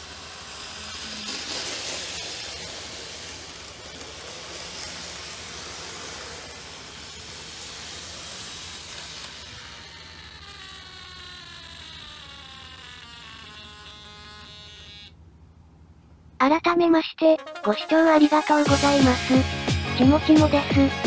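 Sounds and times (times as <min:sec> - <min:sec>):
model train motor running on track: 0:00.0 - 0:15.1.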